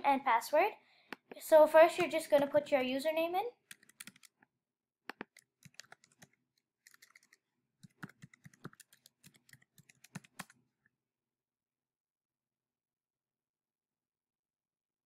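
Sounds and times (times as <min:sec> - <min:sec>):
typing on computer keyboard: 0:03.7 - 0:04.4, 0:05.1 - 0:10.6.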